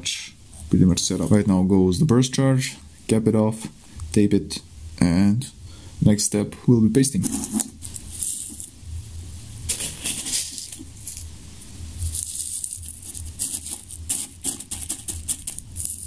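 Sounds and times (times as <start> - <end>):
paper rustling: 7.2 - 8.7, 9.7 - 11.3, 12.0 - 16.0
grains pouring with hiss: 7.7 - 8.8, 9.6 - 16.0.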